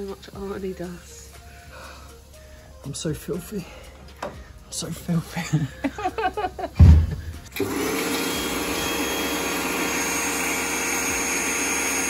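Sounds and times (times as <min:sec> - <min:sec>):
low thump: 0:06.8 - 0:07.4
pressure washer motor whine: 0:06.8 - 0:12.0.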